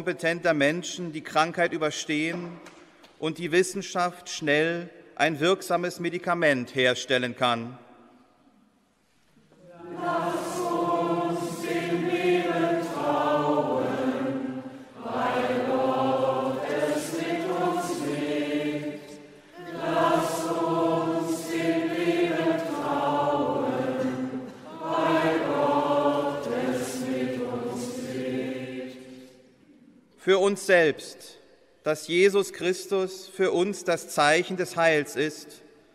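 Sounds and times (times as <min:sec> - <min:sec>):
voices chanting a sung refrain: 0:09.7 - 0:29.3.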